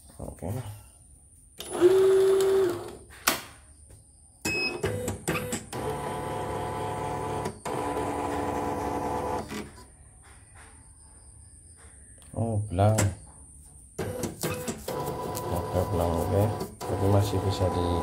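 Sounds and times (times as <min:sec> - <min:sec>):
machine motors running: 0:01.6 - 0:03.0, 0:04.8 - 0:09.7, 0:14.0 - 0:18.0.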